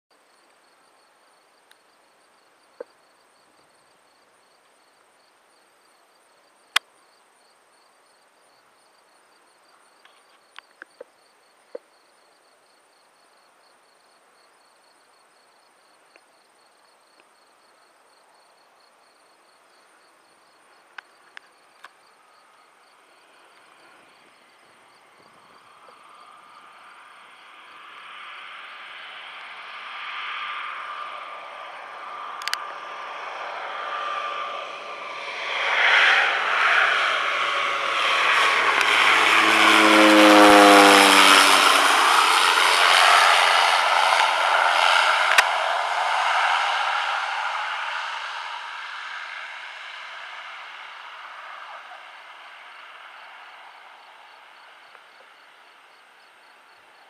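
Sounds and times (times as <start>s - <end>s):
insects chirping: 0.3s - 29.7s, 52.7s - 57.0s
airplane engine approaching: 13.9s - 57.0s.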